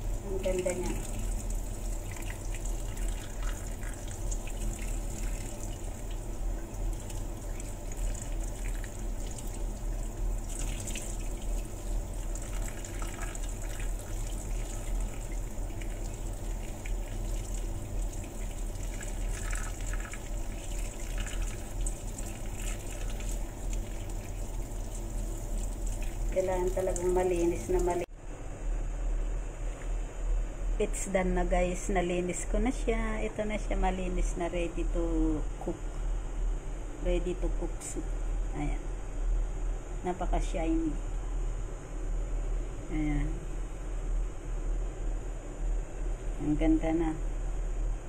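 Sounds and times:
tap water running into sink: 0.0s - 28.1s.

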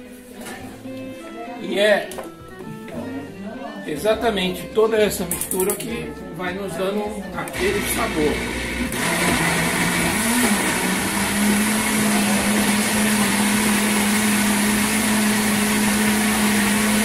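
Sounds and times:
blender motor running: 7.6s - 17.0s.

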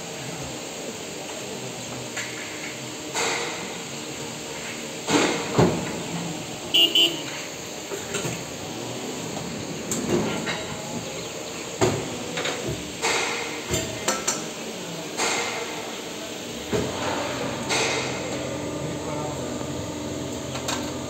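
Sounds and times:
machine hum: 16.6s - 21.0s.

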